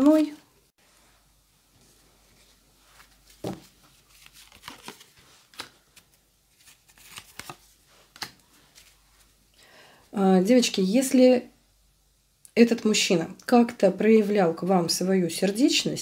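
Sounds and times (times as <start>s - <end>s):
cards sliding and slapping on table: 3.0s - 8.9s.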